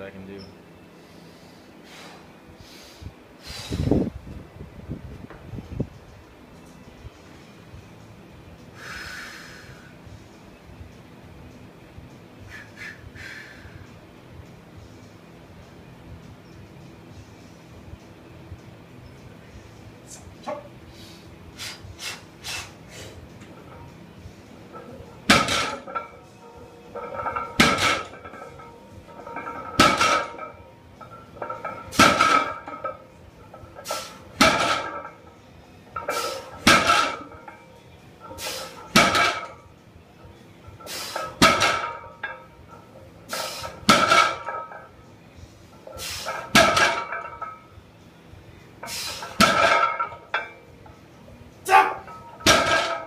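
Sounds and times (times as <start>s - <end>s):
weight plates rattling: 23.4s - 35.3s, 36.0s - 37.6s, 38.2s - 39.7s, 40.8s - 45.0s, 46.0s - 47.7s, 48.8s - 50.6s, 51.8s - 53.0s
barbell landing with clanking thud: 24.7s - 26.3s, 27.0s - 30.6s, 31.4s - 33.0s, 33.8s - 35.1s, 36.0s - 37.5s, 38.3s - 39.6s, 41.2s - 42.4s, 43.7s - 44.8s, 46.3s - 47.6s, 49.2s - 50.5s, 52.1s - 53.0s.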